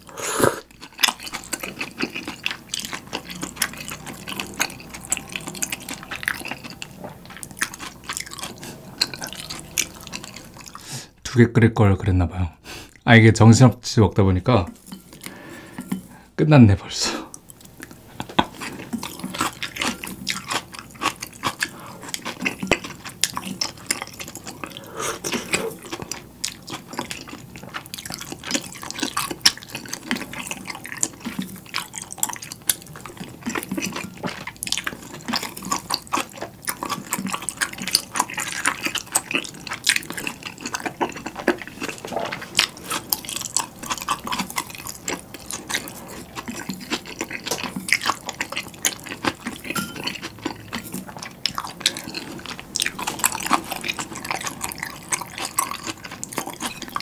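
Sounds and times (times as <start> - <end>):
wet chewing: 0.0 - 11.2, 14.6 - 16.2, 17.3 - 57.0.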